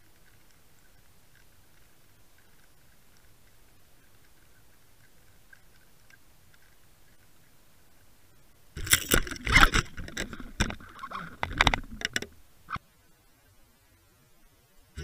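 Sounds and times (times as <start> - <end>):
knocks and scraping on camera housing: 8.8 - 12.3.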